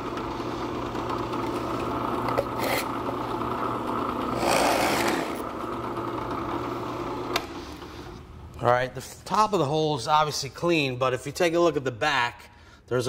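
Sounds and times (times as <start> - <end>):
drill press motor hum: 0.0 - 8.2
drill bit cutting wood: 4.2 - 6.0.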